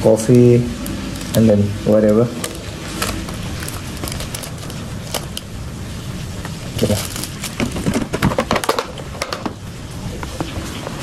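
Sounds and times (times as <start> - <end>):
low hum: 0.0 - 11.0
plastic sachet crinkling: 0.8 - 1.5, 2.3 - 9.3.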